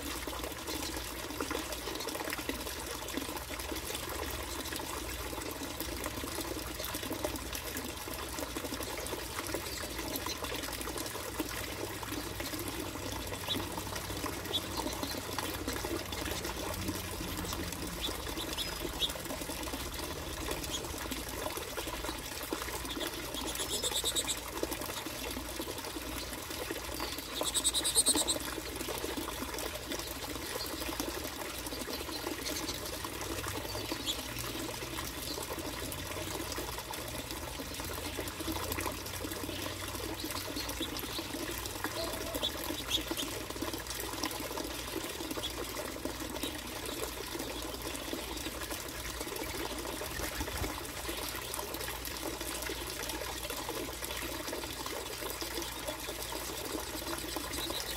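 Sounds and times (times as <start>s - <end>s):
finches chirping: 27.0s - 28.4s.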